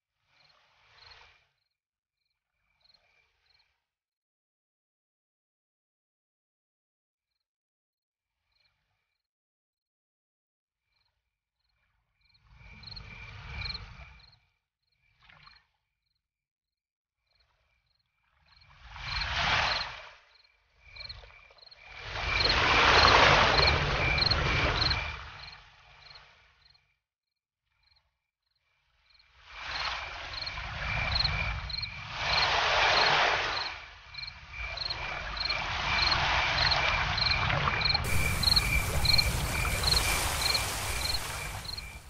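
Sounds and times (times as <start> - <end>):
cricket chirping: 12.2 - 14.4, 17.9 - 26.8, 29.1 - 32.5, 33.6 - 42.0
rushing noise with low rumble: 38.0 - 42.0.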